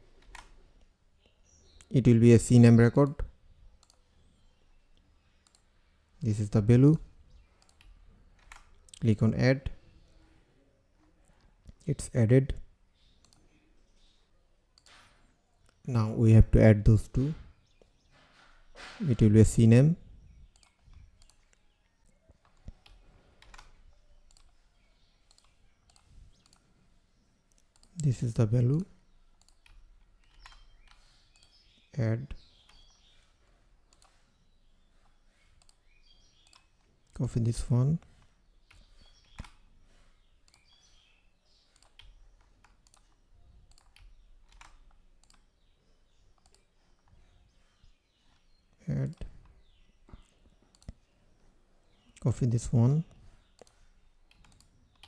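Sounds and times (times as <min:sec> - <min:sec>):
mouse and keyboard clicks: 0:20.4 - 0:24.6, 0:25.2 - 0:26.7, 0:29.4 - 0:31.7, 0:33.9 - 0:34.3, 0:35.0 - 0:37.1, 0:41.7 - 0:45.5, 0:50.2 - 0:51.1, 0:53.1 - 0:55.0.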